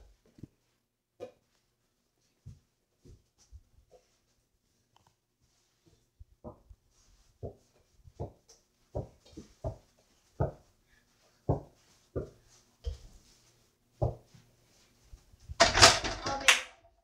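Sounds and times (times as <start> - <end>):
basketball bouncing on floor: 9.0 - 9.8, 10.4 - 10.6, 11.5 - 12.4, 14.0 - 14.3.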